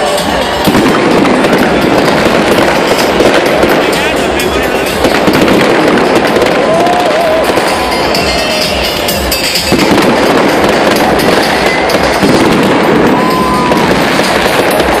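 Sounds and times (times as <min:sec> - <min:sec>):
fireworks crackling and banging: 0:00.0 - 0:15.0.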